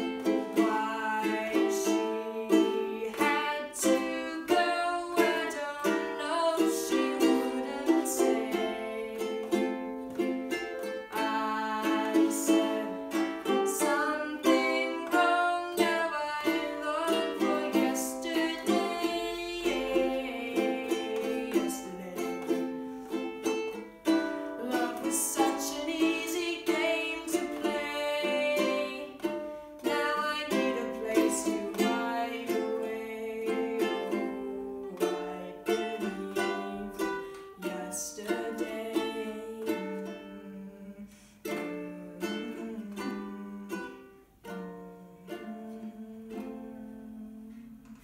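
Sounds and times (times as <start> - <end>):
girl singing: 0.0 - 48.0
ukulele strumming chords: 0.0 - 48.0.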